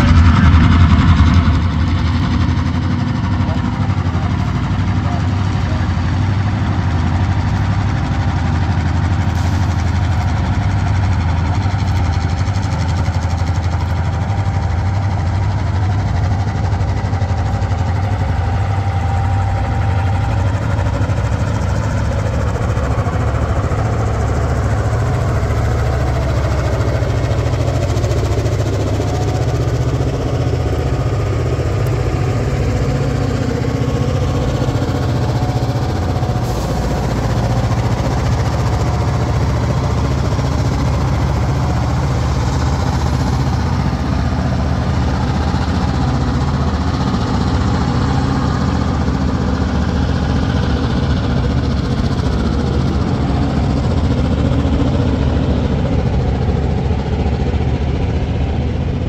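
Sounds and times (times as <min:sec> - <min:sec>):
diesel locomotive engines rumbling: 0:00.0 - 0:59.0.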